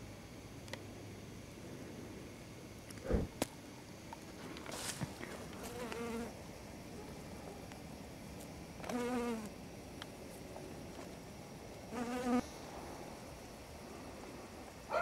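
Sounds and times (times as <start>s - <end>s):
bee buzzing in flight: 5.5s - 6.4s, 8.8s - 9.5s, 11.9s - 12.4s.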